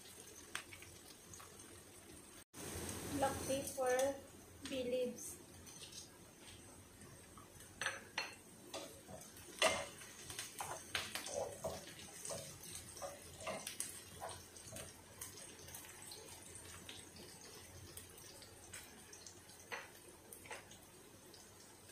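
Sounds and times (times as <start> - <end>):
onions sizzling in oil: 0.0 - 21.9
spatula scraping a pan: 8.7 - 14.9.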